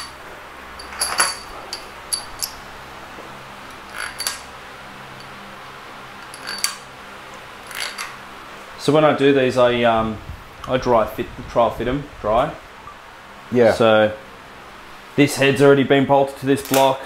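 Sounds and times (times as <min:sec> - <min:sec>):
metal washers clinking: 0:00.0 - 0:02.7, 0:03.6 - 0:05.4, 0:06.2 - 0:06.9, 0:07.6 - 0:08.2
faint hum: 0:00.0 - 0:17.0.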